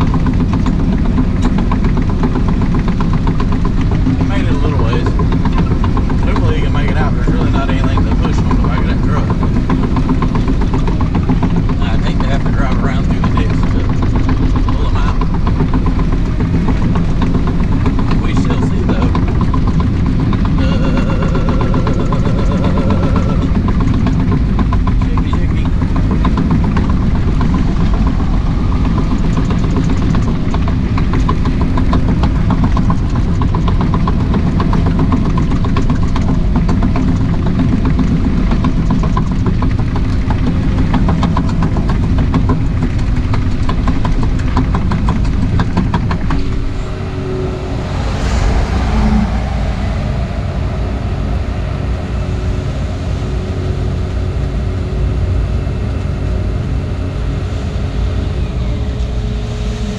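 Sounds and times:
diesel engine running: 0.0 - 59.9
short rushing noise: 45.6 - 53.1.

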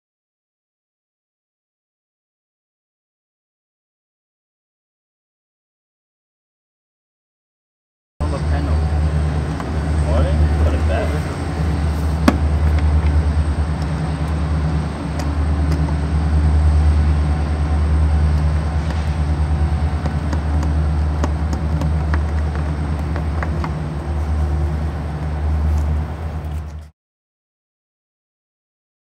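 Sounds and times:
low engine drone: 8.2 - 26.9.

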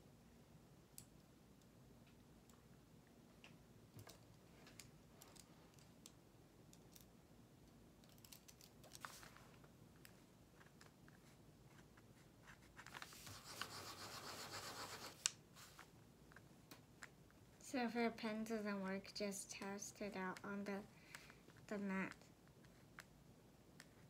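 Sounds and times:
pen scribbling on paper: 13.3 - 15.2.

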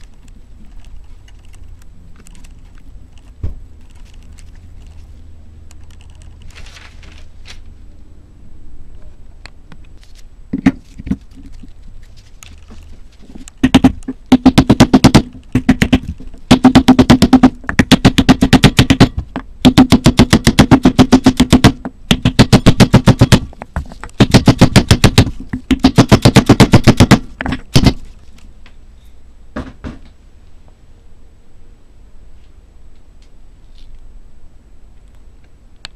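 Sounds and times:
hammer tapping a wooden block: 13.6 - 28.0.

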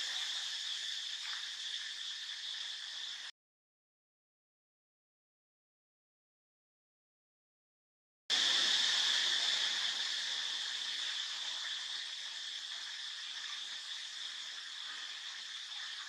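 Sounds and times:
high-pitched insect chorus: 0.0 - 3.3, 8.3 - 16.0.

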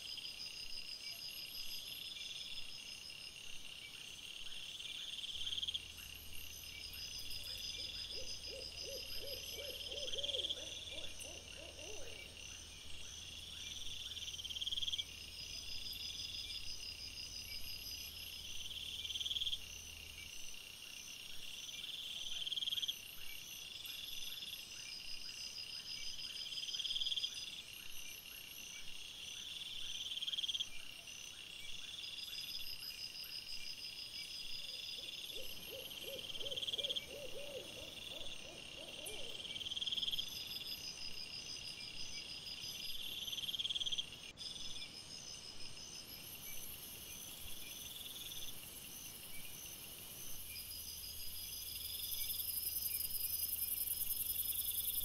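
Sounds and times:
low pulsed hoot-like calls: 7.4 - 12.4, 34.7 - 39.7.

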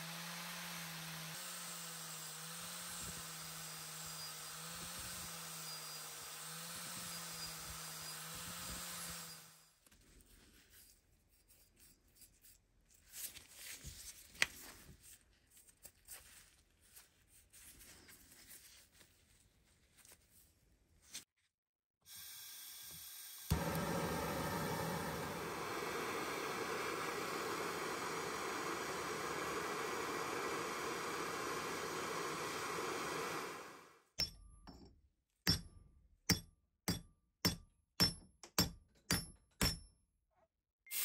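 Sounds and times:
angle grinder cutting steel: 0.0 - 9.6, 23.4 - 33.9
gloved hands rubbing metal: 10.2 - 13.8.

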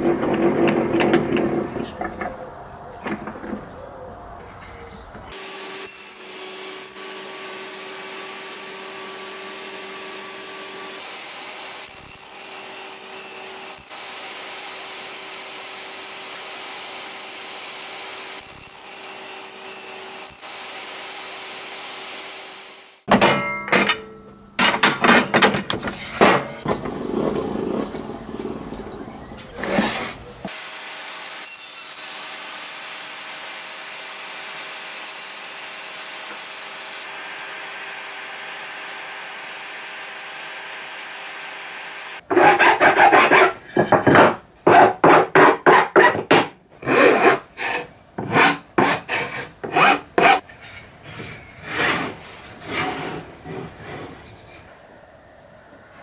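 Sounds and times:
table saw cutting wood: 5.3 - 23.1, 29.6 - 50.4, 51.2 - 54.0.

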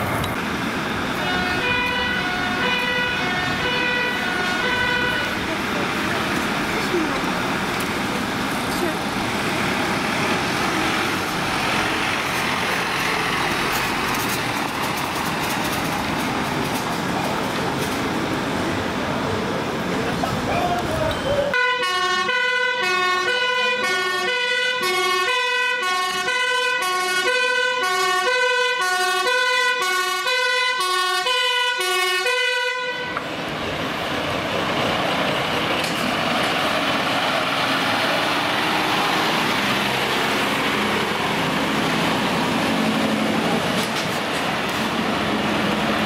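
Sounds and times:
fire engine engine passing: 0.0 - 46.0
two-tone siren: 1.2 - 5.4, 21.6 - 33.2.

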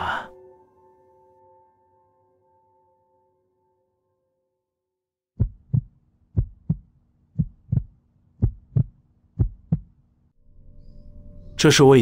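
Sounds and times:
heartbeat thumps: 5.4 - 10.0.

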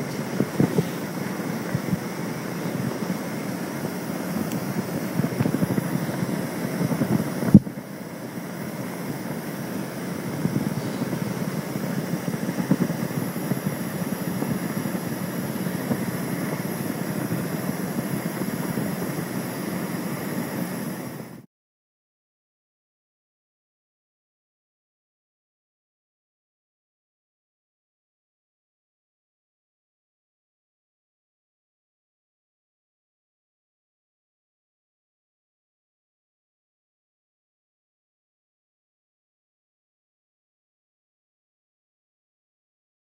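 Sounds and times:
boat engine rumbling: 0.0 - 21.4
wind buffeting microphone: 0.0 - 21.4.

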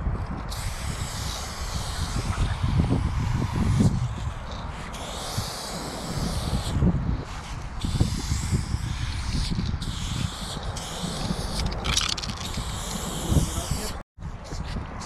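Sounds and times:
spray can hissing: 0.5 - 3.9, 4.8 - 6.8, 7.4 - 14.0.

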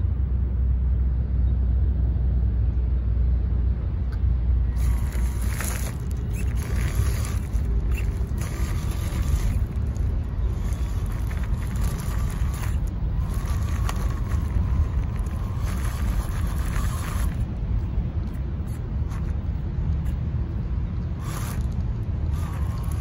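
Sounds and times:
wind rumble on microphone: 0.0 - 23.0
small electric motor whining: 4.7 - 17.6, 18.6 - 19.4, 21.1 - 23.0.

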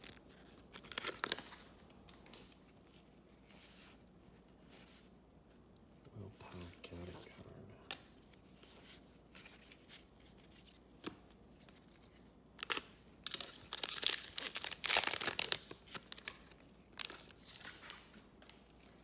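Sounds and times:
foil wrapper tearing and crinkling: 0.0 - 1.7, 12.6 - 18.1.

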